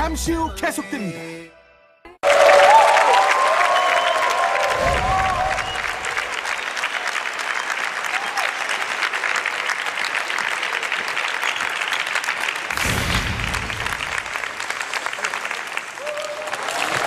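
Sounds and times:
crowd applauding: 2.2 - 17.0.

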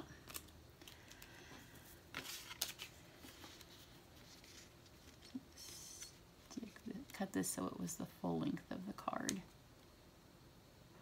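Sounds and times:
light paper rustle: 0.2 - 7.2.

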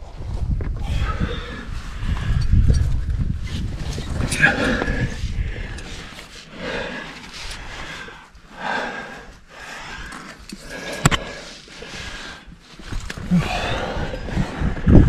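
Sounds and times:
person breathing heavily: 0.8 - 2.7, 4.2 - 15.0.

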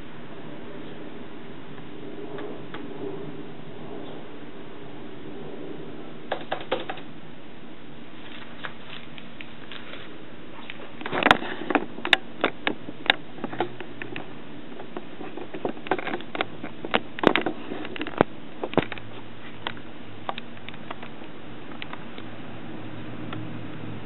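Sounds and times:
steady low hum: 0.0 - 24.0
laptop computer clicks and ticks: 6.3 - 7.1.

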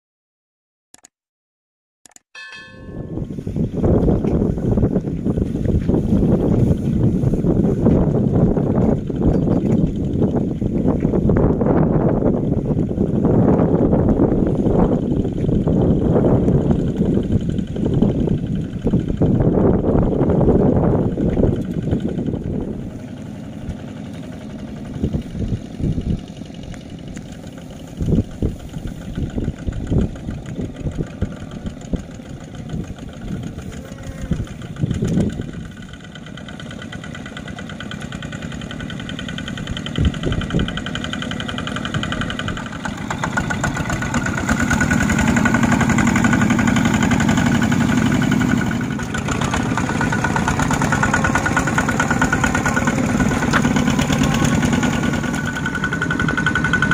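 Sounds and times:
tractor passing close by: 2.5 - 56.9
diesel engine running: 2.6 - 56.9.

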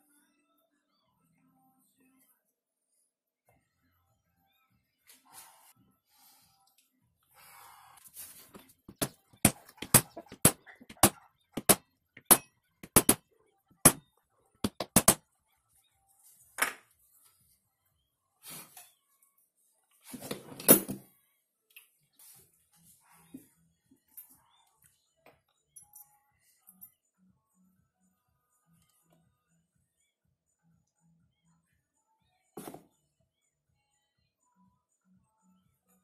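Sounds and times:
hammer tapping on metal: 8.9 - 13.2, 14.6 - 15.2.

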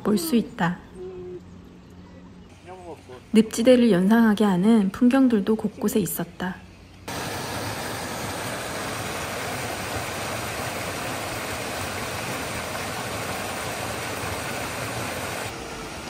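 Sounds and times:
stream rushing over rocks: 7.1 - 15.5.

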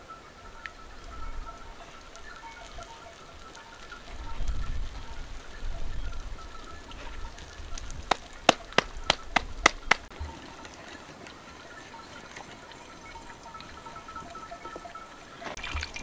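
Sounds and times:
sharp knocks: 8.1 - 10.1.

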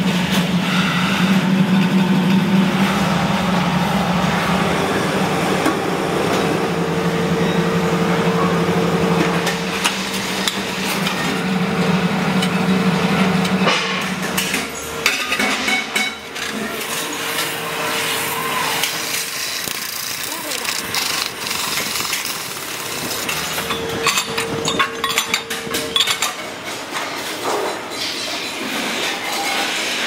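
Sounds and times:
hydraulic press humming: 0.0 - 27.9
cutting tool scraping metal: 19.1 - 24.6.

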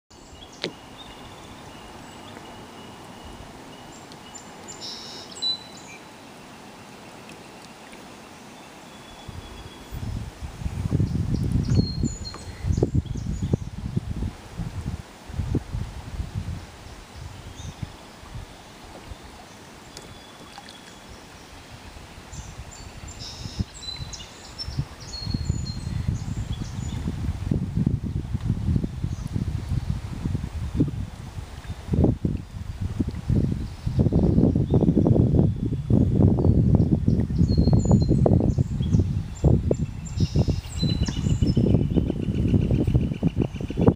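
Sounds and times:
flowing river water: 0.1 - 43.7
birds whistling: 0.2 - 6.0, 22.3 - 27.0, 37.4 - 43.8
wind on microphone: 9.2 - 19.4, 21.1 - 43.9
small birds chirping: 33.7 - 43.9.

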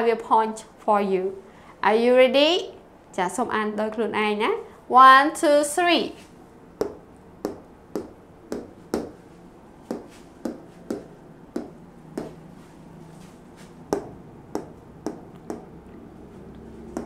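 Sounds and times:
marker tapping on whiteboard: 6.8 - 9.2, 9.8 - 12.4, 13.9 - 15.8.

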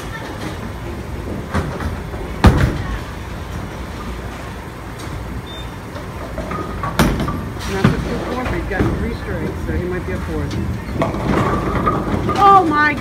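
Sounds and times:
bowling hall din: 0.0 - 13.0
bowling ball rolling on wooden lane: 5.9 - 13.0.

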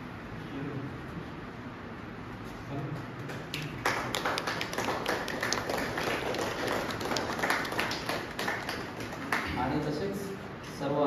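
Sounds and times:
crowd applauding: 3.4 - 9.5.

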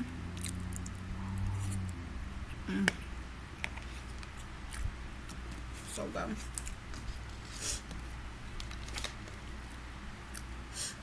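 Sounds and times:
person chewing food: 0.3 - 1.8
person humming: 2.6 - 3.1.

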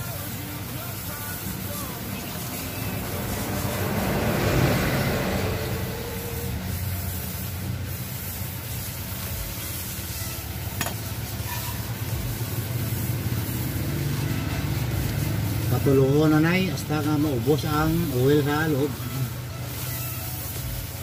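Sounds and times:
low traffic engine hum: 0.0 - 21.0
rush of passing traffic: 0.0 - 21.0.

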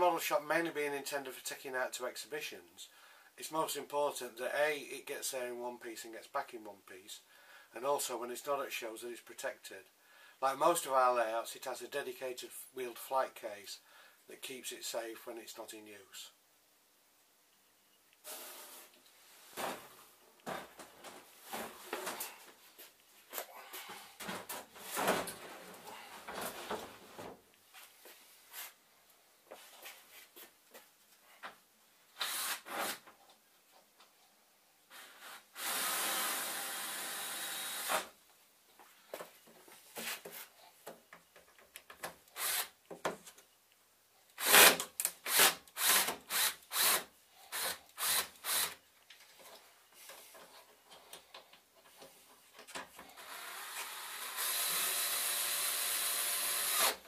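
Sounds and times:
cordless drill whirring: 35.0 - 38.1, 42.4 - 42.7, 45.3 - 48.8, 53.2 - 57.0.

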